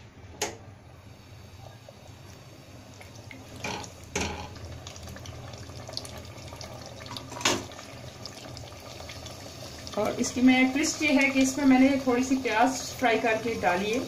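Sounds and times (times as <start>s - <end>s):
gravy bubbling and sizzling in pot: 0.7s - 14.0s.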